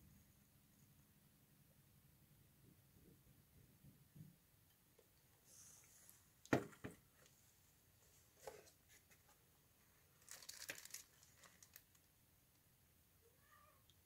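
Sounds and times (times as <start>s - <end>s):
plastic bag crinkling: 10.2s - 12.0s.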